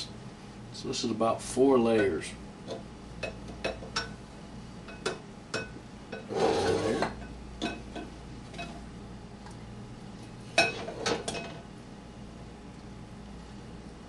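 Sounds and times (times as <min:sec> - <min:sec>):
kitchenware clinking: 0:10.6 - 0:11.6.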